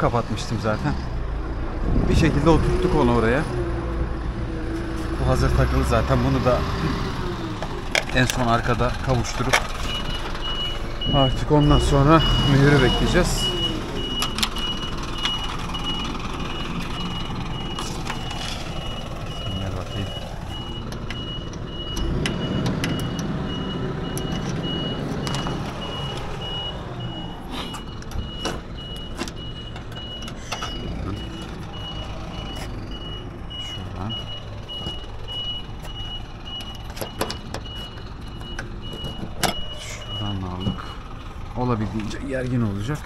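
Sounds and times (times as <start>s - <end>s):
heavy engine running low: 5.2s - 43.0s
reversing alarm beeping: 8.5s - 41.2s
knocks and clatter: 34.2s - 39.6s.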